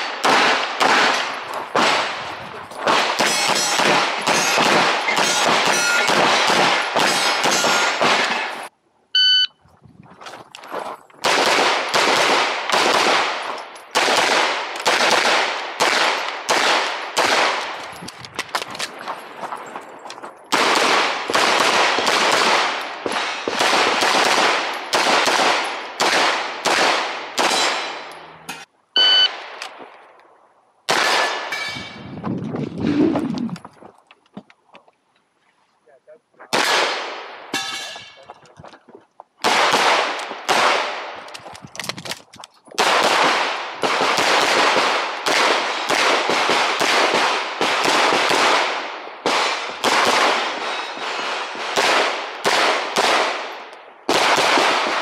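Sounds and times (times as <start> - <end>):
pistol firing rapid shots: 0.0 - 2.2, 2.8 - 8.6, 11.2 - 17.8, 20.5 - 28.0, 30.9 - 31.5, 36.5 - 37.4, 39.4 - 41.2, 42.8 - 55.0.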